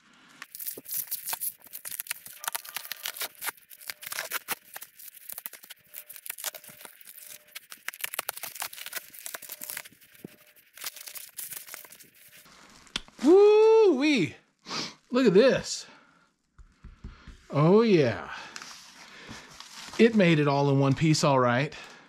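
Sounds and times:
plastic wrap crinkling and tearing: 0.4s - 13.4s, 18.6s - 20.4s
box cutter slicing plastic wrap: 2.1s - 9.9s.

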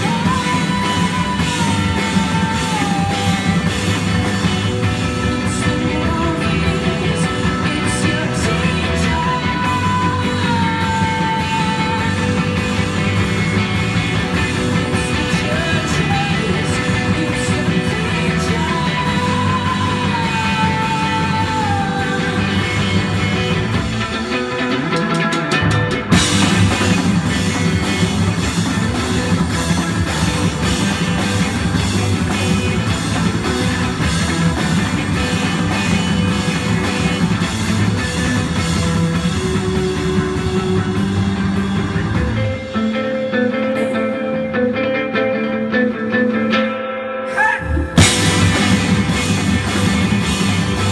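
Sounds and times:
woman singing lead vocal: 0.0s - 13.0s, 14.8s - 23.4s, 47.2s - 48.5s
drum kit: 0.0s - 46.6s, 47.3s - 50.9s
electric bass: 0.0s - 46.6s, 47.5s - 50.9s
electric guitar: 0.0s - 50.9s.

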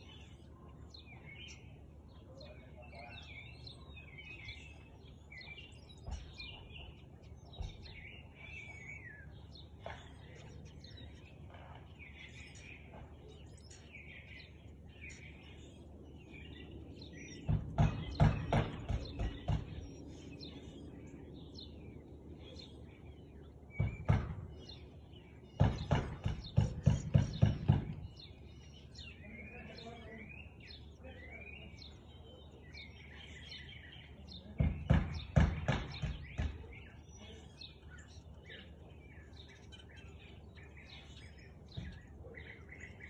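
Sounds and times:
small birds chirping: 0.0s - 43.0s
loud knocks: 17.4s - 19.8s, 23.8s - 24.5s, 25.6s - 28.0s, 34.6s - 36.6s.

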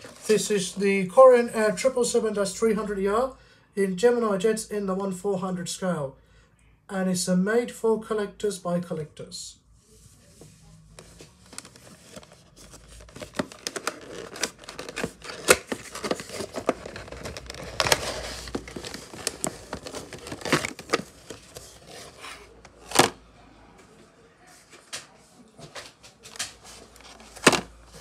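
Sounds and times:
packaging rustling and crinkling: 0.0s - 0.4s, 11.0s - 23.2s, 26.3s - 28.0s
plastic sharp crack: 13.1s - 21.7s, 22.7s - 23.2s, 27.3s - 27.8s.

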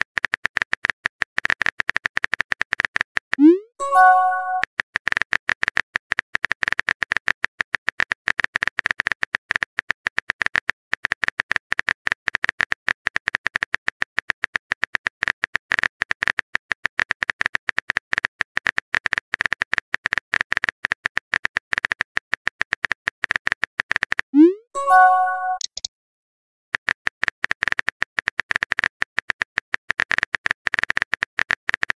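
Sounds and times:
phone keyboard typing clicks: 24.8s - 25.9s.

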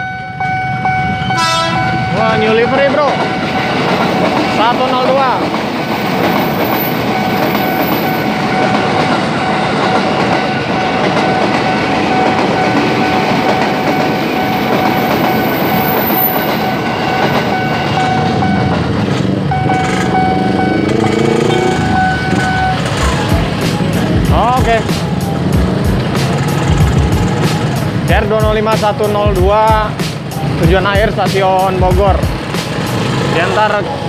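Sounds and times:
crossing warning alarm ringing: 0.0s - 34.0s
electric train passing: 0.0s - 34.0s
engine revving: 17.9s - 28.0s.

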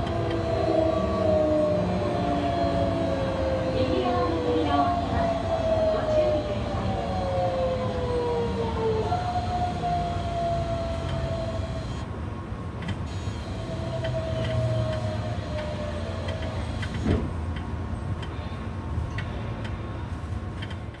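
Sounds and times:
train wheels rumbling on rails: 0.0s - 21.0s
train motor whine: 9.5s - 12.1s, 13.0s - 17.2s.

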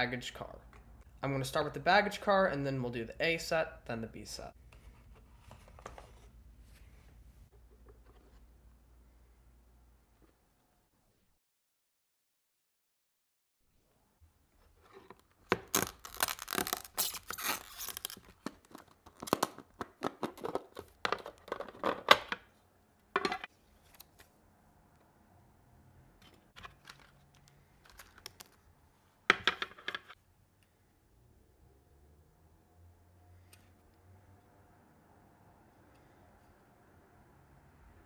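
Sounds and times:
plastic crinkling and scraping: 14.6s - 22.1s.

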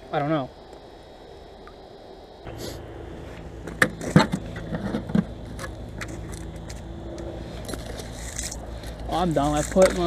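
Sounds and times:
low hum: 0.0s - 10.0s
fishing gear clattering on ice: 7.6s - 10.0s.

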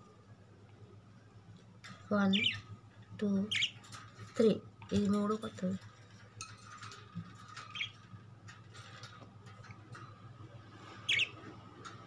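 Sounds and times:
budgerigars chirping: 3.5s - 3.8s, 11.1s - 11.4s.

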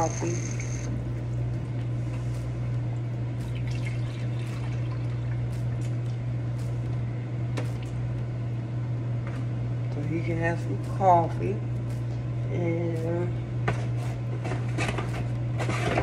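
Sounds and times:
coffee maker pump hum: 0.0s - 16.0s
liquid running: 0.7s - 6.8s.

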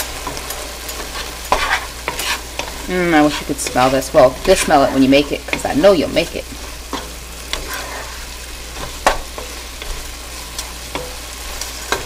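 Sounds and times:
food sizzling in a pot: 0.0s - 12.0s
wooden spoon scraping: 0.2s - 12.0s.

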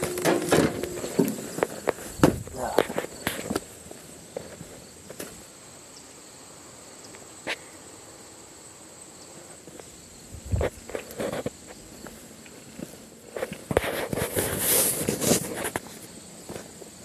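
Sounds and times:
crunching thudding footsteps: 0.0s - 5.5s, 9.6s - 17.0s
steady high hiss: 0.0s - 17.0s.

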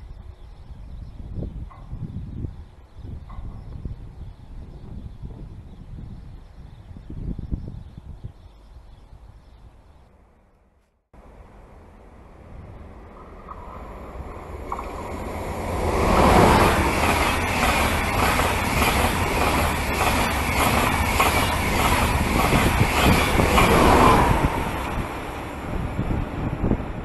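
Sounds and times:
high-speed train rushing past: 11.2s - 27.0s.

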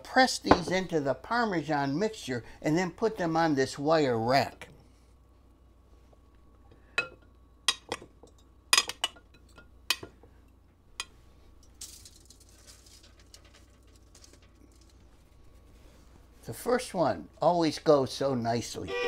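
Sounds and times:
soft rustle: 11.1s - 16.6s.

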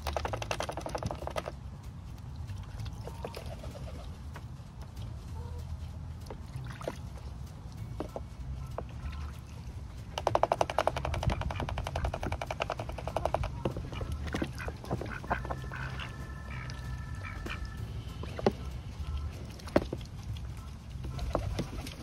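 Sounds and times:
ducks quacking: 8.0s - 22.0s.

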